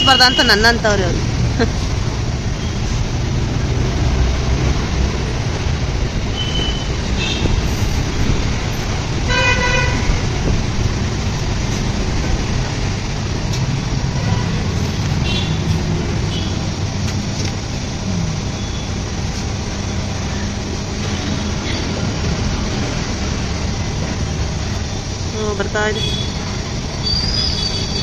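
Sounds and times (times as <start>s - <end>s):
road traffic noise: 0.0s - 28.0s
vehicle horn honking: 9.3s - 10.1s, 14.1s - 14.6s, 15.2s - 15.6s, 26.0s - 26.4s.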